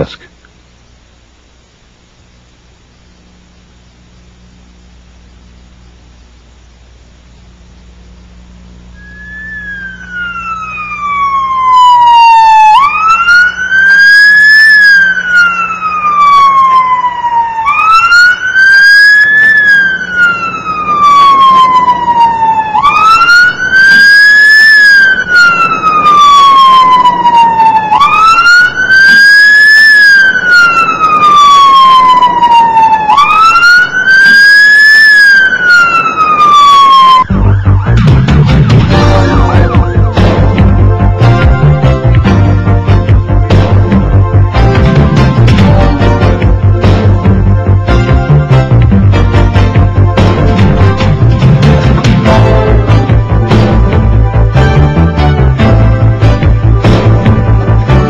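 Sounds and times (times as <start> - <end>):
ambulance siren wailing: 9.0 - 43.2.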